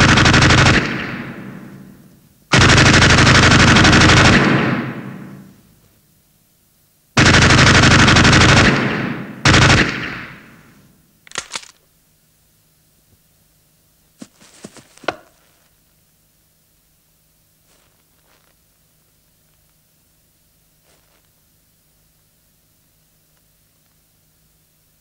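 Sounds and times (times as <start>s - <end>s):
automatic gunfire bursts: 0.0s - 1.8s, 2.5s - 5.4s, 7.2s - 10.6s.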